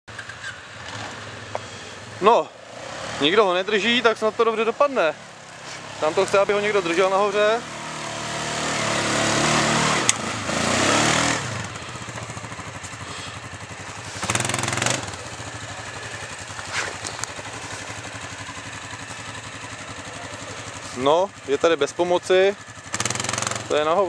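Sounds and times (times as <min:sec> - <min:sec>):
quad bike engine revving: 0:00.1 - 0:24.0.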